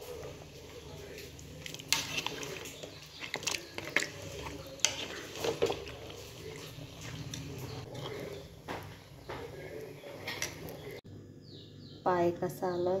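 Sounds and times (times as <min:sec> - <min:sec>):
metal ladle scraping metal pot: 0:01.6 - 0:08.5.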